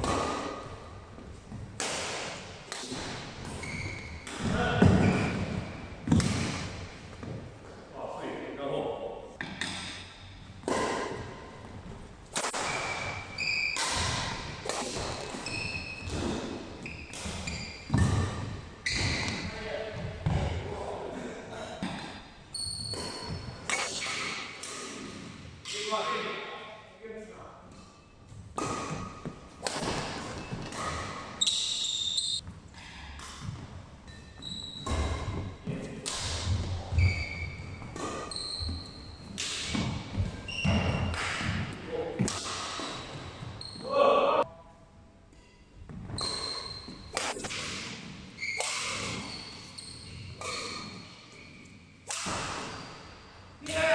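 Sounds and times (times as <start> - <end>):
racquet hitting shuttlecock: 0.0 - 6.9, 9.4 - 11.4, 12.2 - 19.5, 22.9 - 26.0, 27.7 - 43.5, 45.9 - 53.9
shoes squeaking on wooden floor: 3.4 - 6.2, 12.7 - 13.8, 15.1 - 20.4, 22.5 - 23.7, 28.0 - 32.5, 33.5 - 35.9, 36.5 - 41.7, 42.8 - 43.9, 45.9 - 47.4, 48.4 - 51.8.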